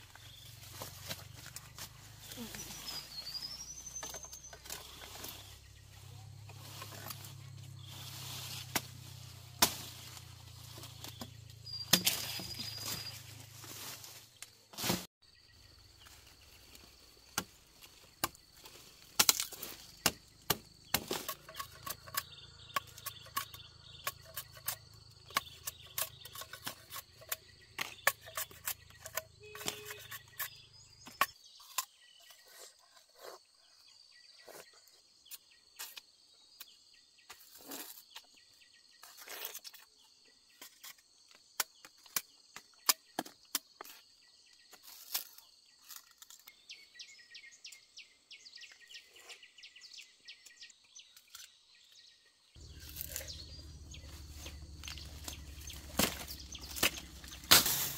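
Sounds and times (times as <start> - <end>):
sugarcane stalks snapping: 7.9 - 13.1, 17.3 - 26.1, 52.6 - 57.9
insects droning: 52.6 - 57.9.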